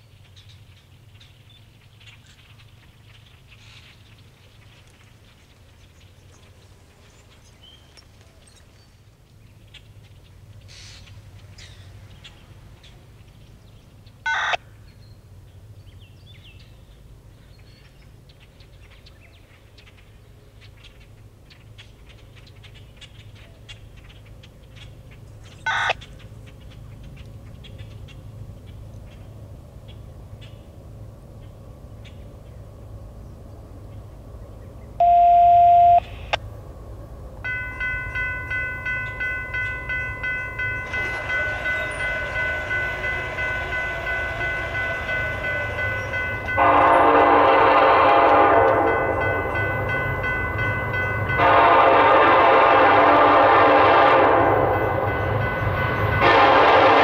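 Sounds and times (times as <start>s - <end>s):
loud steady tone: 35.0s - 36.4s, 37.4s - 57.0s
short electronic beeps: 35.0s - 36.4s.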